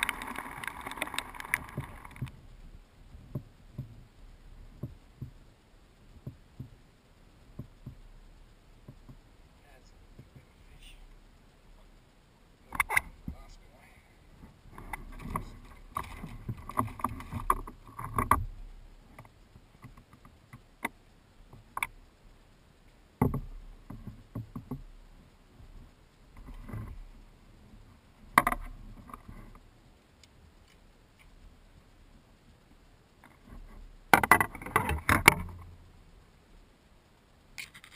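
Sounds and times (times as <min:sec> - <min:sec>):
knocks and taps of fishing gear: 0:03.2 - 0:04.0, 0:04.8 - 0:05.4, 0:06.2 - 0:06.8, 0:07.6 - 0:08.0, 0:08.8 - 0:09.2, 0:14.7 - 0:18.5, 0:23.2 - 0:24.8, 0:28.4 - 0:29.4, 0:34.1 - 0:35.7.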